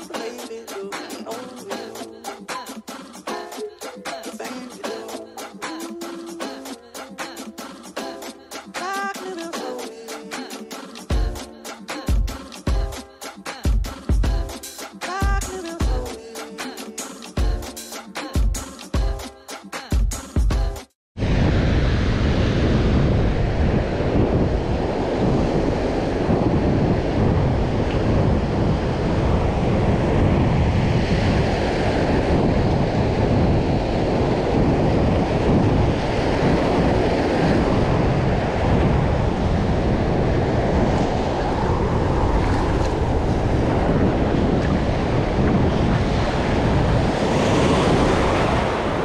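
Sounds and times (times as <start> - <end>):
strong wind rumbling on microphone: 21.2 - 49.0.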